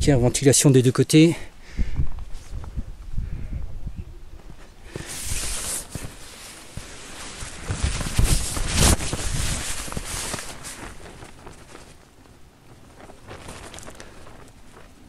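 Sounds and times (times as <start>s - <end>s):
wind buffeting microphone: 1.5s - 6.3s, 7.5s - 12.0s.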